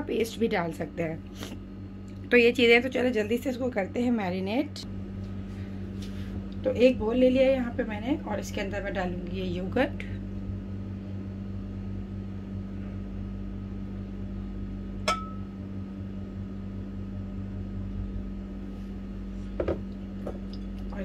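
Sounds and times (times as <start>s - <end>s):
steady low hum: 0.0s - 21.0s
glass bowl clinking: 15.1s - 15.5s, 19.6s - 21.0s.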